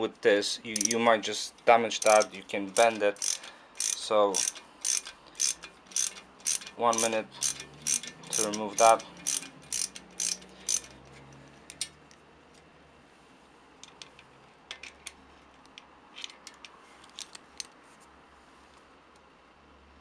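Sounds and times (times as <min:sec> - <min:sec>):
metallic clicks of hand tool and bolt: 0:00.7 - 0:01.0, 0:01.6 - 0:12.7.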